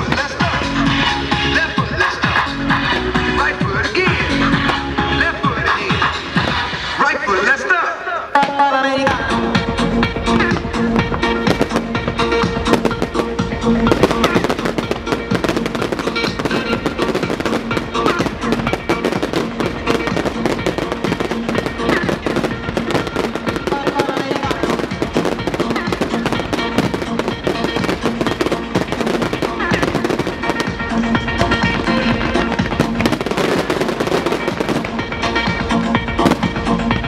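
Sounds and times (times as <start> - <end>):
fireworks bursting and crackling: 0.0 - 1.0, 10.4 - 37.0
loud music: 0.0 - 37.0.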